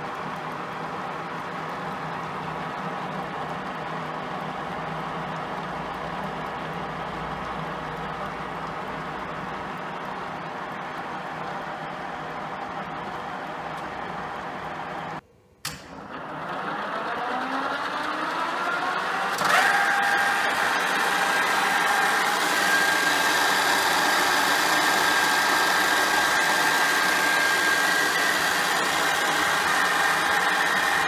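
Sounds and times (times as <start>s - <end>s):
milling machine spindle whine: 0.0s - 15.2s, 16.0s - 31.0s
machine switch click: 15.6s - 15.9s.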